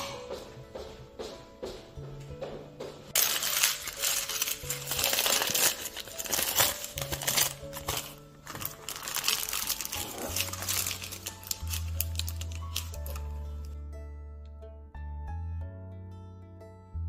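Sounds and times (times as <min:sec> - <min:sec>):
soft background music: 0:00.0 - 0:17.0
parchment paper crinkling: 0:03.2 - 0:13.7.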